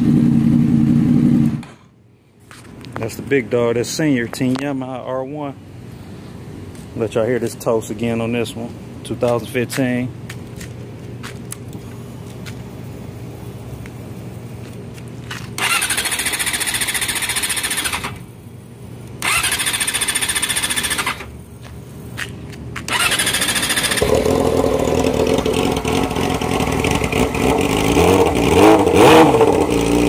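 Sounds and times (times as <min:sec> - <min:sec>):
motorcycle engine revving: 0:00.0 - 0:01.8, 0:15.6 - 0:18.2, 0:19.2 - 0:21.3, 0:22.8 - 0:30.0
motorcycle engine idling: 0:15.6 - 0:18.2, 0:19.2 - 0:21.3, 0:22.9 - 0:28.5.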